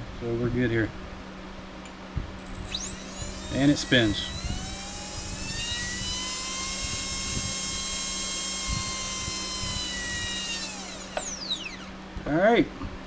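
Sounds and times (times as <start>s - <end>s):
electric motor high-pitched whine: 2.4s - 12.2s.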